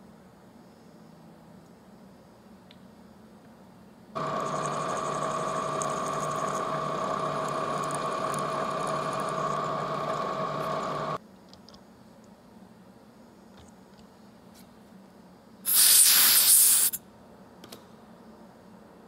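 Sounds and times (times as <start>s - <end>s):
milling machine drilling aluminum: 4.2s - 11.2s.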